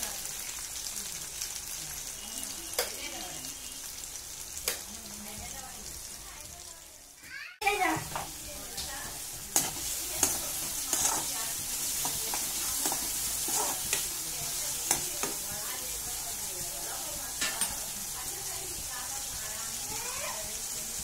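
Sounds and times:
onions sizzling in hot oil: 0.0s - 21.0s
spoon scraping and clinking pan: 9.5s - 14.1s.

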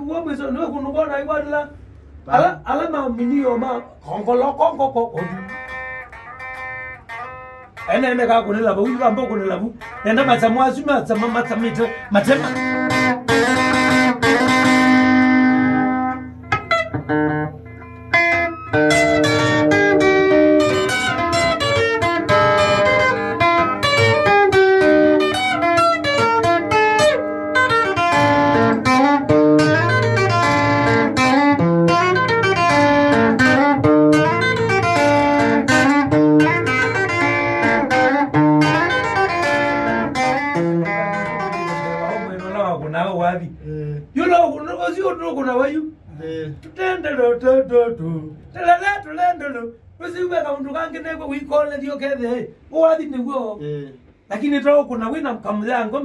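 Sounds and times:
plucked guitar band music: 3.1s - 45.2s
bass line: 5.2s - 42.7s.

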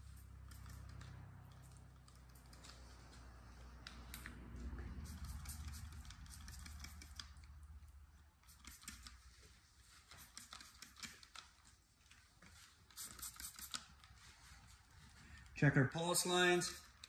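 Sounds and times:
spray bottle spritzes: 5.0s - 7.4s, 8.4s - 9.2s, 10.0s - 11.3s, 12.8s - 14.0s.

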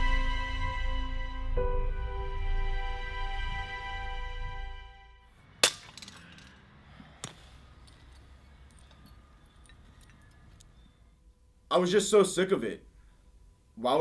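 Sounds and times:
ceramic smashed by hammer: 5.6s - 6.4s
shards clinking: 5.6s - 6.6s.

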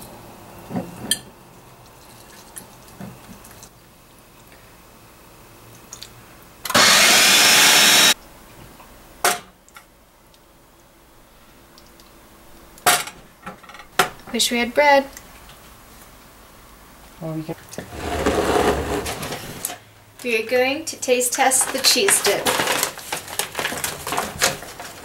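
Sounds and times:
food processor motor running: 6.7s - 8.2s.

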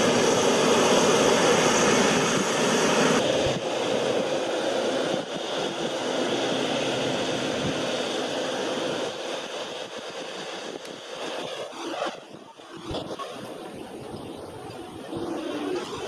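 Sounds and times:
jet engines rushing: 0.0s - 16.0s.

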